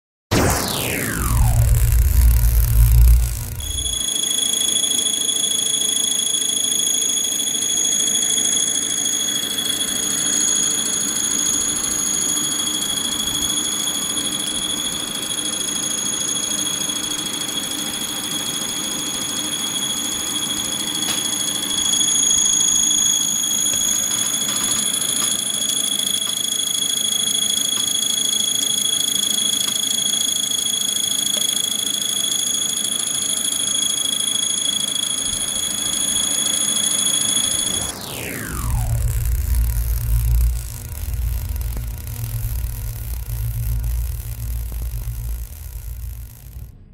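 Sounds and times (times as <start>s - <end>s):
servo motor whine: 0.3s - 16.9s, 20.4s - 46.8s
low motor hum: 0.4s - 4.0s, 38.4s - 46.9s.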